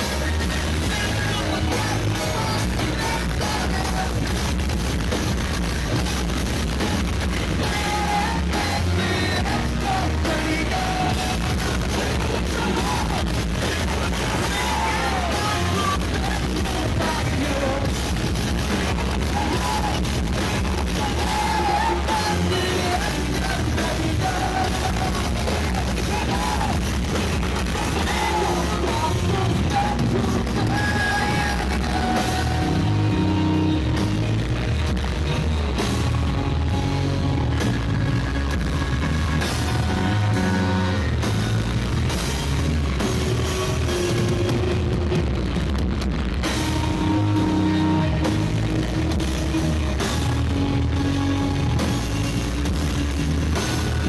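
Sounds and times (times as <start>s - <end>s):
person singing: 0.0s - 4.7s, 7.1s - 41.8s
drums: 0.0s - 54.0s
electric guitars: 0.0s - 54.0s
live rock band: 0.0s - 54.0s.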